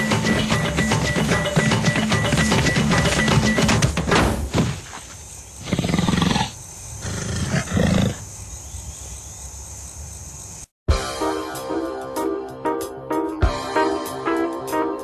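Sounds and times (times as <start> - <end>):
music with drums: 0.0 - 4.2.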